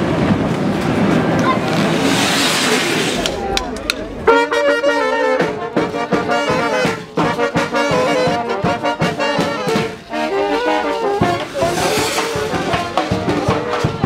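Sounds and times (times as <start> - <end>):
brass band playing: 2.2 - 14.0
bass drum beat: 3.2 - 8.8.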